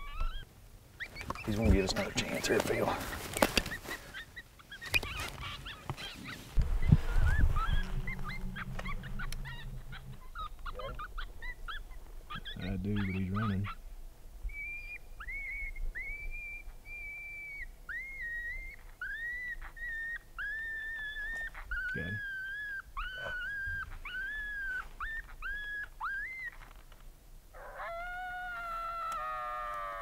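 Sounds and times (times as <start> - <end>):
coyote pup yelps from a caller: 0.0 - 13.8, 14.5 - 30.0
falling howl: 6.6 - 11.9, 27.6 - 30.0.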